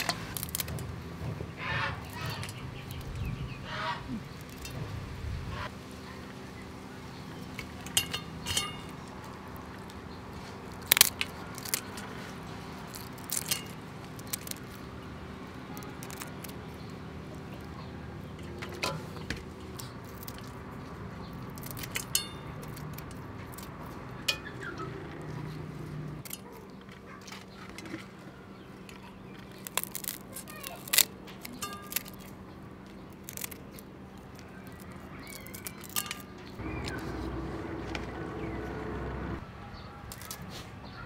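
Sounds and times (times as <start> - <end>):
scissors snipping shrimp shells: 0.0 - 0.8, 10.6 - 15.0, 15.6 - 24.4, 29.5 - 36.9, 40.1 - 40.6
steady low hum: 36.6 - 39.5.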